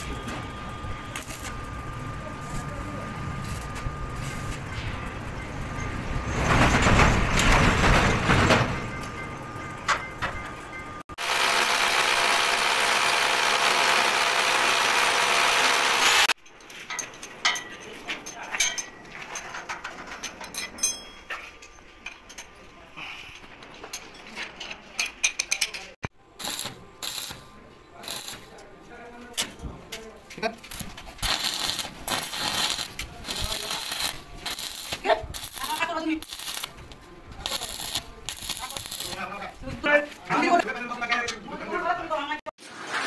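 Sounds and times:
steady welding hiss: 0:00.0 - 0:04.6, 0:11.2 - 0:16.3, 0:26.4 - 0:28.6, 0:30.6 - 0:39.6
loud welding crackling: 0:00.0 - 0:05.2, 0:11.2 - 0:16.4, 0:26.4 - 0:28.6, 0:30.5 - 0:39.6
metal taps and clinks: 0:16.4 - 0:22.6.

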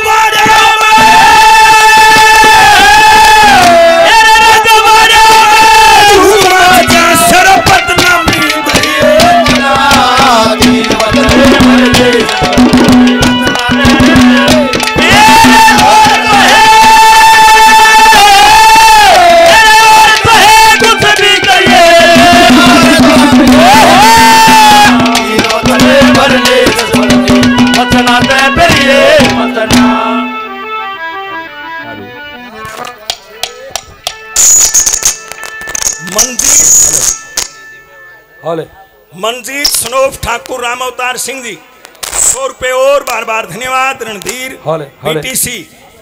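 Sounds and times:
rapid hand-drum strokes: 0:06.3 - 0:17.1, 0:19.6 - 0:30.0.

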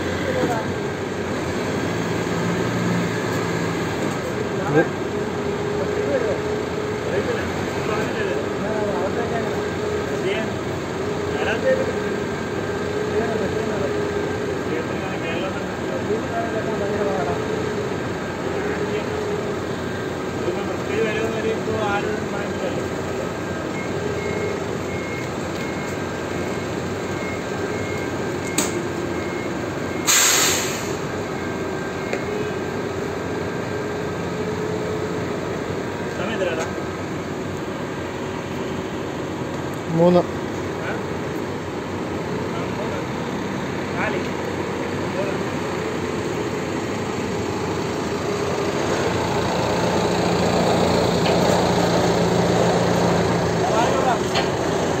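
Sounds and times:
forklift engine running: 0:00.0 - 0:55.0
reversing alarm beeps: 0:22.0 - 0:33.8
short loud hiss: 0:30.0 - 0:31.0.

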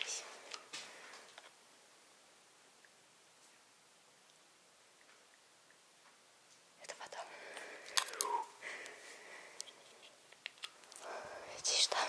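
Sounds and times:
person whispering: 0:00.0 - 0:00.4, 0:06.8 - 0:08.6, 0:11.0 - 0:12.0
small sharp clicks and crunches: 0:07.5 - 0:09.0, 0:09.6 - 0:11.1.

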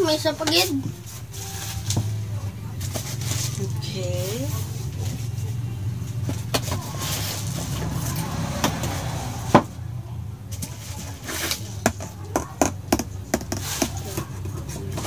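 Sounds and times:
bubble wrap and plastic rustling: 0:00.0 - 0:08.2.

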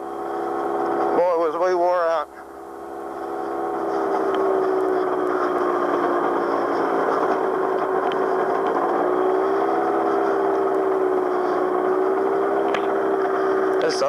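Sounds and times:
gyrocopter engine droning: 0:00.0 - 0:14.0.

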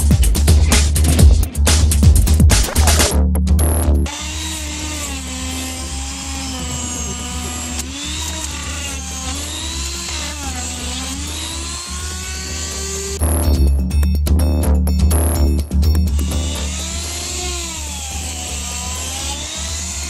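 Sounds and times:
rotary tool grinding ice: 0:04.1 - 0:13.2, 0:16.1 - 0:20.0.

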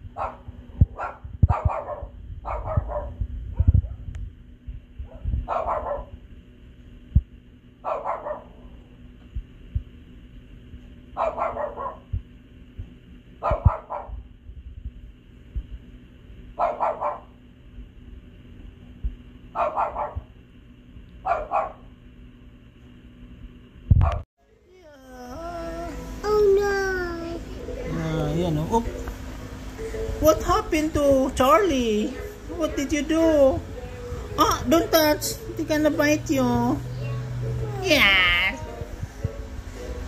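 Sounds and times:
dog barking: 0:00.2 - 0:04.0, 0:05.0 - 0:06.2, 0:07.8 - 0:08.7, 0:11.2 - 0:12.1, 0:13.4 - 0:14.2, 0:16.6 - 0:17.4, 0:19.6 - 0:20.3, 0:21.2 - 0:21.9, 0:24.0 - 0:24.2.

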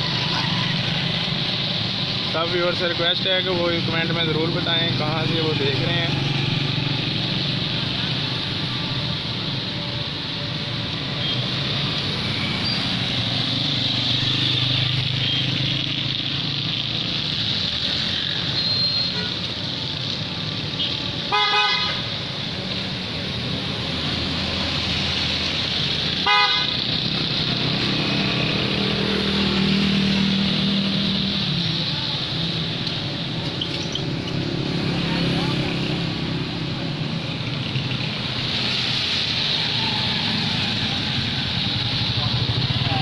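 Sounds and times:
traffic engine hum: 0:00.0 - 0:43.0
vehicle horn honking: 0:21.3 - 0:22.0, 0:26.2 - 0:26.7
tyre hiss on wet road: 0:38.2 - 0:42.1.

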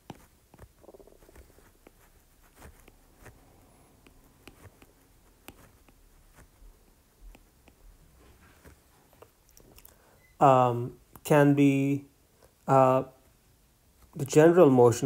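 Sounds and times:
stylus tapping on glass screen: 0:00.0 - 0:01.7.

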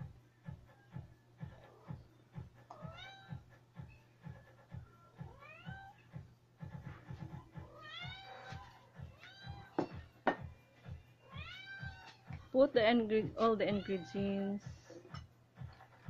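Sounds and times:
cat meowing: 0:02.7 - 0:03.4, 0:05.2 - 0:06.1, 0:07.6 - 0:10.0, 0:11.2 - 0:12.3.

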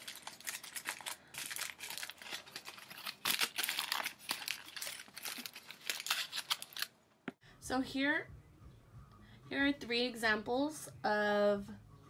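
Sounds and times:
aluminium foil crinkling: 0:00.0 - 0:07.0.

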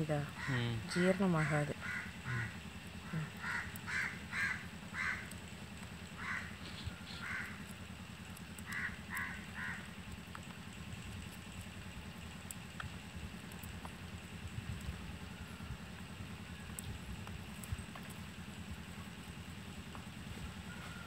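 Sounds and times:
bird calling: 0:00.0 - 0:10.5, 0:20.0 - 0:21.0
low hum: 0:00.0 - 0:21.0.

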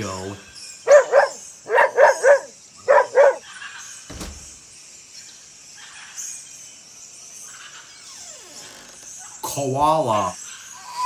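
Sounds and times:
dog barking: 0:00.8 - 0:03.5
dull thump: 0:04.1 - 0:04.6.

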